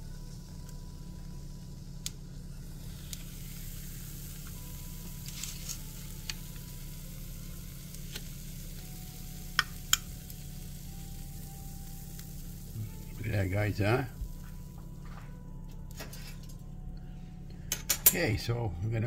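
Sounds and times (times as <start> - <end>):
food sizzling in waffle maker: 0.0 - 15.2
metal fork clicking on hot plate: 9.6 - 10.1.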